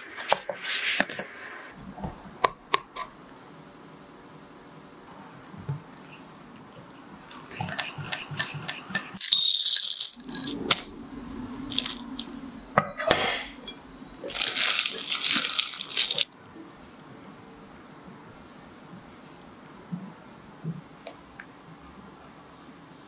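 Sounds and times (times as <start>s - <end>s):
whisk scraping a ceramic bowl: 7.5s - 9.2s
rattle and clinking: 9.0s - 10.9s, 11.7s - 12.3s, 14.2s - 16.3s
low hum: 10.2s - 16.7s.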